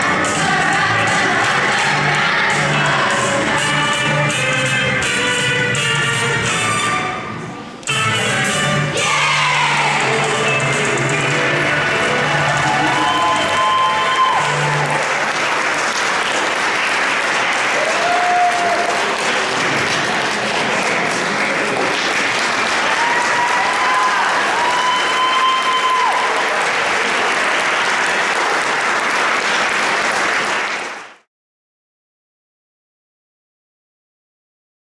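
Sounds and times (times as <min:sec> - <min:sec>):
audience applauding: 0:11.3 - 0:31.3
cheers: 0:11.9 - 0:15.6, 0:17.6 - 0:19.6, 0:22.6 - 0:28.6.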